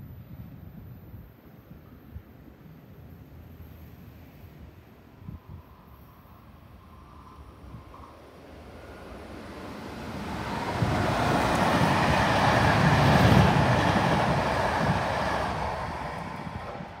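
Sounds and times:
train wheels rumbling on rails: 6.9 - 17.0.

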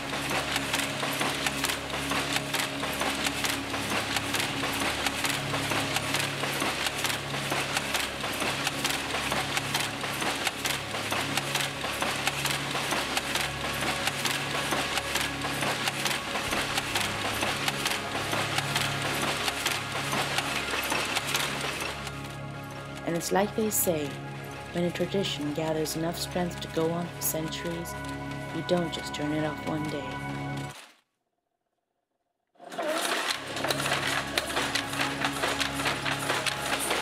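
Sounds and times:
loom clattering: 0.0 - 24.2, 32.6 - 37.0.

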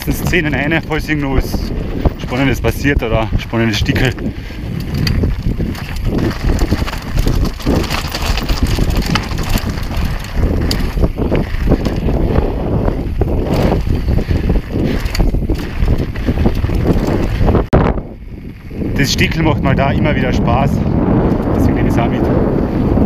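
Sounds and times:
tyres crunching on gravel: 0.0 - 17.6
bike clattering and rattling: 0.0 - 23.0
wind buffeting microphone: 0.0 - 23.0.

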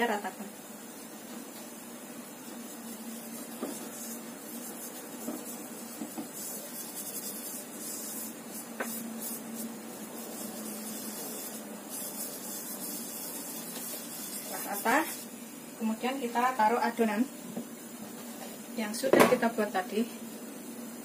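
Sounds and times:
soft steady hiss: 0.0 - 21.0
fingers rubbing in a frying pan: 2.4 - 15.3.

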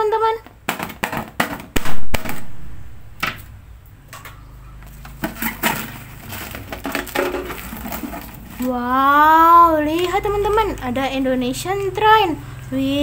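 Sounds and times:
paper crackling and crumpling: 4.8 - 11.0.

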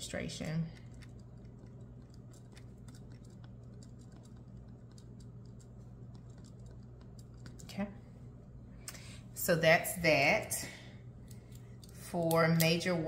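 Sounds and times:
steady low hum: 0.0 - 13.0
pen scratching on paper: 1.5 - 7.6.

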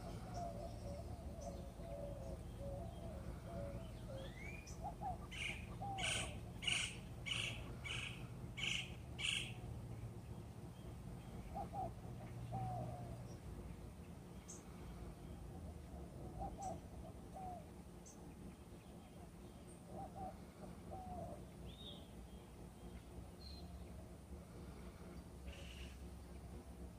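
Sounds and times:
bird calling sharp notes: 0.0 - 9.6
steady low hum: 0.0 - 26.9.

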